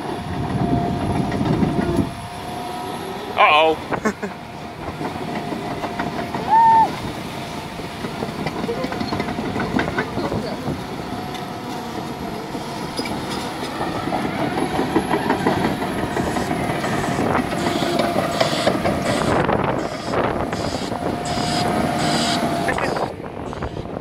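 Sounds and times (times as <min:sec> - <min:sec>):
excavator diesel engine running: 0:00.0 - 0:24.0
steel tracks clanking: 0:00.0 - 0:24.0.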